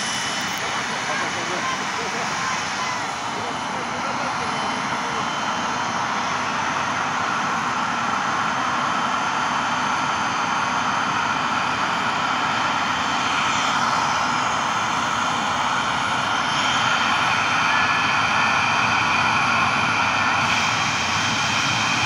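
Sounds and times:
helicopter rotor noise: 0.0 - 22.0
helicopter turbine whine: 0.0 - 22.0.

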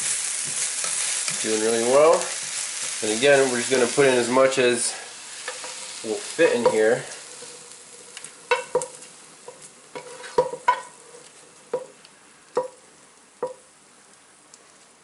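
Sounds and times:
spoon scraping and clinking skillet: 0.0 - 1.5, 5.4 - 11.9
faint steady hiss: 0.0 - 15.0.

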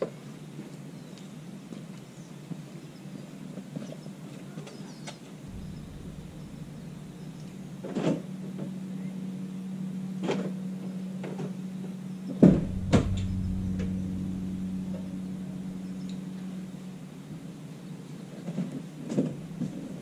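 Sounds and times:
sharp engine knocks: 5.5 - 8.7, 12.4 - 17.0
car engine idling: 5.5 - 20.0.

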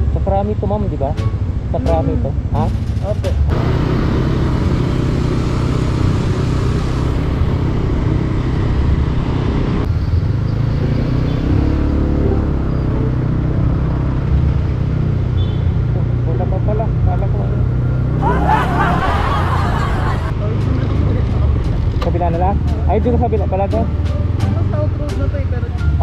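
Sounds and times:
motorcycle engine running: 0.0 - 9.9
second engine: 0.0 - 25.4
wind and road noise: 0.0 - 26.0.

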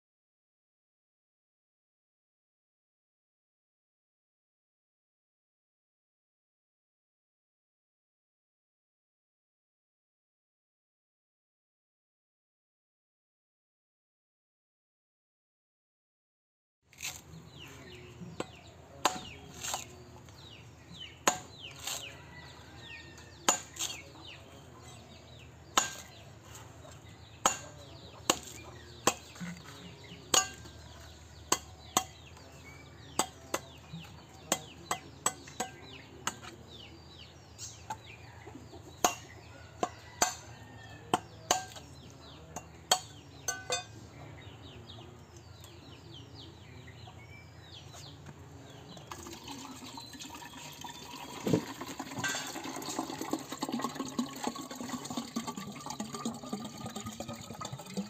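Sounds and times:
machete chopping coconut husk: 16.9 - 17.3, 18.4 - 20.5, 21.2 - 22.1, 23.4 - 24.1, 25.6 - 26.2, 27.4 - 37.2, 41.1 - 42.0.

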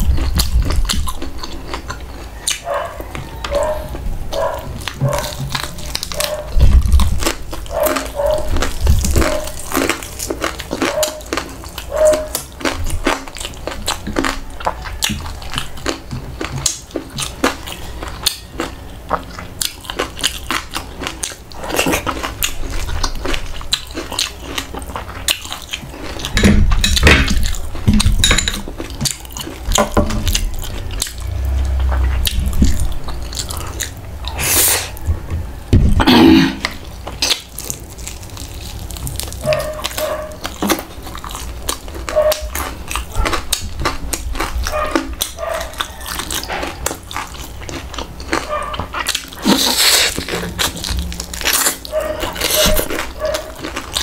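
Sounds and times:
crunching and chewing: 0.0 - 54.0
wet mouth sounds: 29.0 - 35.1, 36.0 - 54.0
low thumps: 31.2 - 33.3.

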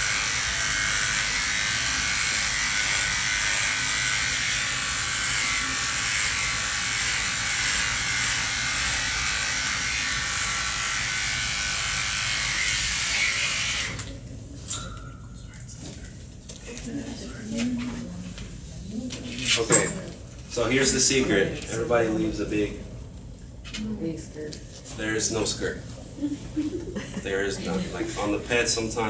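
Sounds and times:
electric clipper running: 0.0 - 14.2.

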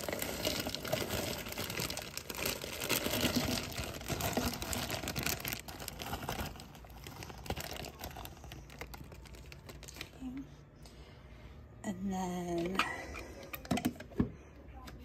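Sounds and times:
plastic bag crinkling: 0.0 - 10.4.

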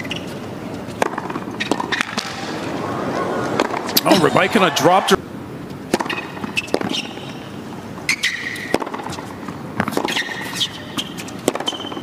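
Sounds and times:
shoes squeaking on court: 0.0 - 4.6, 6.1 - 7.4, 8.1 - 12.0
tennis ball bouncing: 0.9 - 2.8, 8.6 - 12.0
racket striking tennis ball: 11.4 - 11.9.

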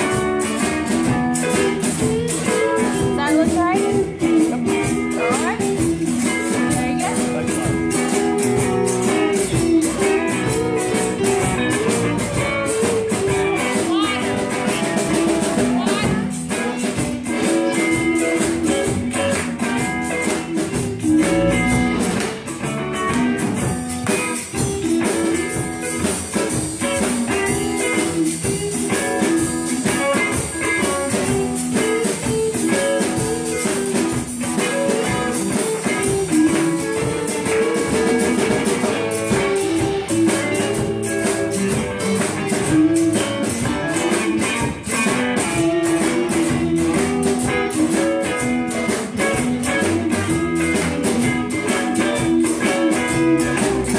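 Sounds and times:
drum hits: 0.0 - 53.9
live blues band: 0.0 - 53.9.

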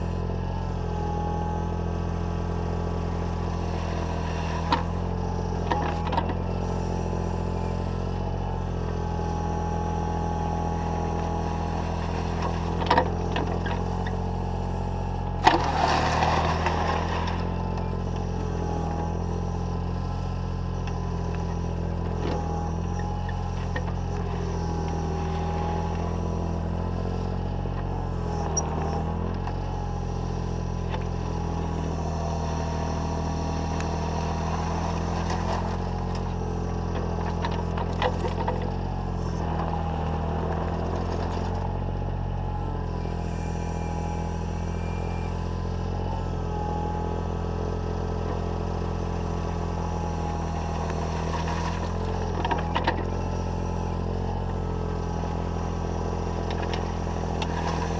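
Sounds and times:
excavator diesel engine running: 0.0 - 57.9
hydraulic whine: 0.0 - 57.9
gravel spilling from bucket: 15.6 - 17.4.

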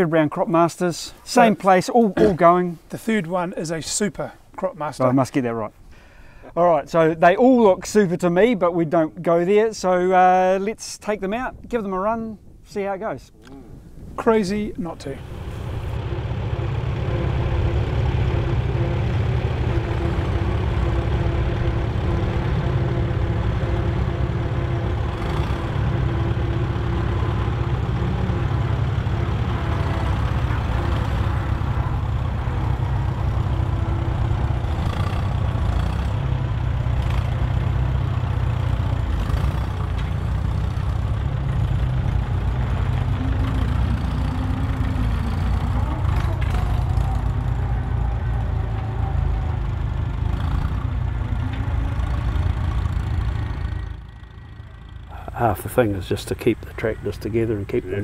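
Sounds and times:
tractor engines running: 13.4 - 58.0.

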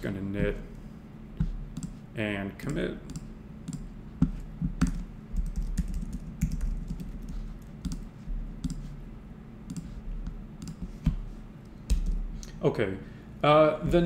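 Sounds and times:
computer keyboard typing: 4.8 - 8.9, 10.6 - 10.9.

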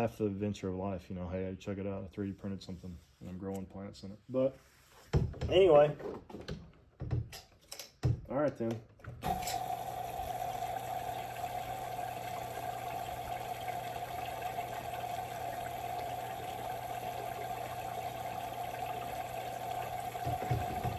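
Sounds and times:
water pump humming: 9.2 - 20.9
water trickling and splashing: 9.3 - 20.9.

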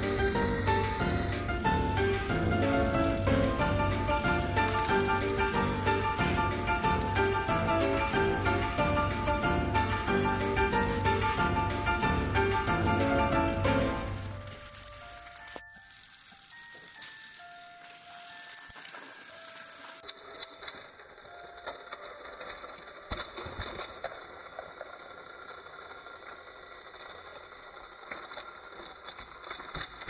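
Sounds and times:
background music melody notes: 0.0 - 22.2
toy train motor whirring: 0.1 - 30.0.

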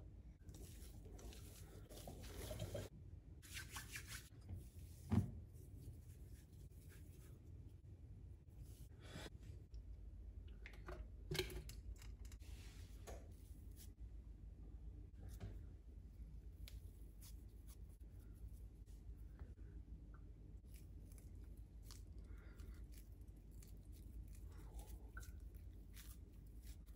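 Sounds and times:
hands squeezing mashed potato: 20.6 - 26.9.

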